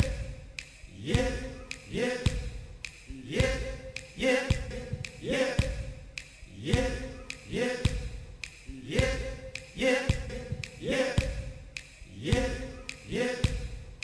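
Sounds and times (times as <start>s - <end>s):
man singing a short repeated word: 0.0s - 14.0s
drum and bass thumps: 1.1s - 2.8s, 3.4s - 6.1s, 6.7s - 7.2s, 7.8s - 8.4s, 9.0s - 9.4s, 10.1s - 11.6s, 12.3s - 12.8s.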